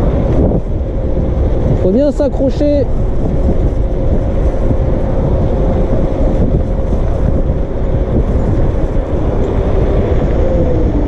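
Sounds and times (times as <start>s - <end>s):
steady whine: 0.0s - 11.0s
wind buffeting microphone: 0.0s - 11.0s.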